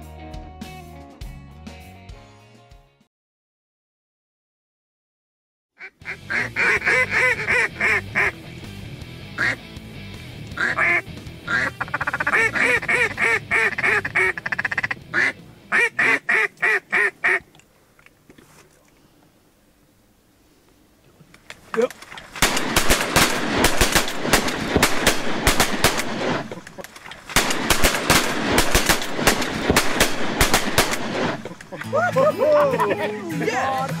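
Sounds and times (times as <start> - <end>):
duck quacking: 5.8 - 8.4, 9.3 - 9.7, 10.5 - 17.5, 31.3 - 31.9.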